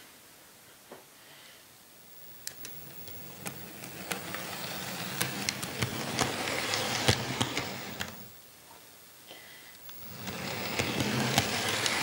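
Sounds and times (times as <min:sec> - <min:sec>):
sharp clicks: 0:02.4 - 0:04.2
model train motor hum: 0:02.4 - 0:08.3, 0:09.9 - 0:12.0
wheels on track: 0:02.6 - 0:08.3, 0:09.9 - 0:12.0.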